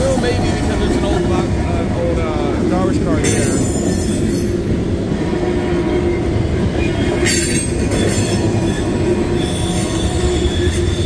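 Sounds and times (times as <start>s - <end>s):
train wheels rumbling on rails: 0.0s - 11.0s
high wheel squeal: 6.1s - 11.0s.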